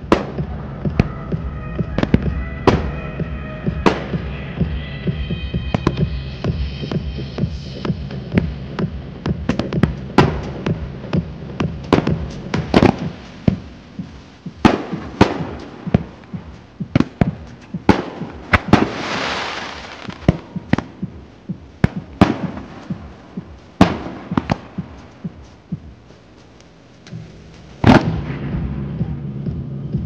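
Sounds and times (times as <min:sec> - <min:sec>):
faint music: 0:00.0 - 0:30.0
fireworks bangs: 0:01.9 - 0:03.0, 0:03.7 - 0:04.4, 0:11.9 - 0:25.4, 0:27.8 - 0:28.8
ground fountain hiss: 0:17.5 - 0:20.7.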